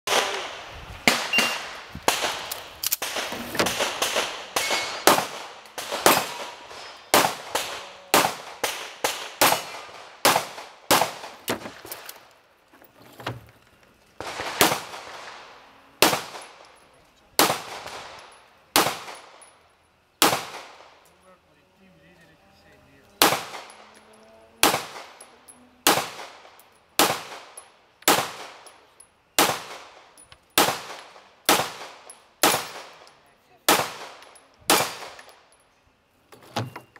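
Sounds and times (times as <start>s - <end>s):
handgun shots: 1.1s - 11.2s.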